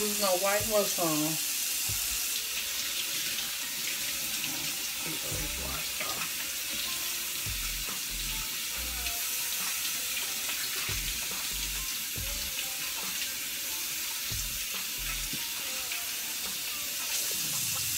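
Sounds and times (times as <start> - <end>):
tap water running into sink: 0.0 - 17.9
dull low thumps: 1.9 - 2.2, 5.3 - 5.8, 7.5 - 7.9.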